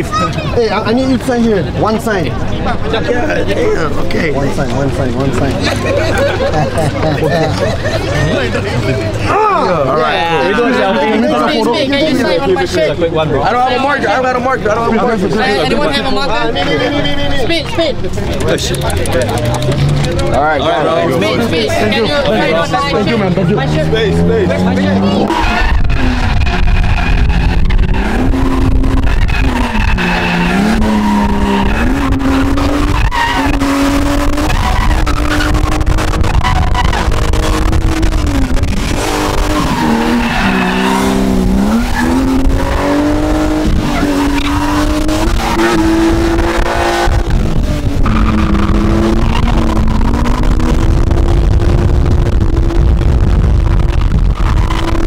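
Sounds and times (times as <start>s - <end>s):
tyres skidding on pavement: 15.2s - 55.0s
car engine revving hard: 21.9s - 55.0s.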